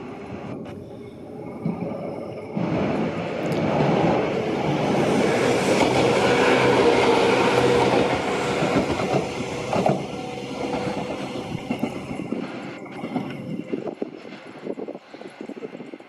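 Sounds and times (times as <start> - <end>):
electric train passing: 0.0 - 16.0
wheels clicking over rail joints: 7.7 - 15.0.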